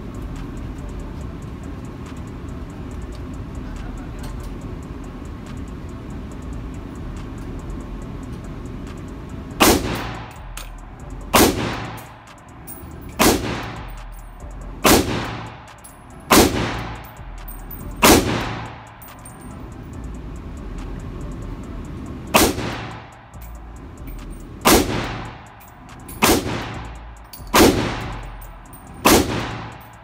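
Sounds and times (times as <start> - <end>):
pistol shots echoing indoors: 9.6 - 10.4, 11.3 - 19.6, 22.3 - 23.5, 24.6 - 30.0.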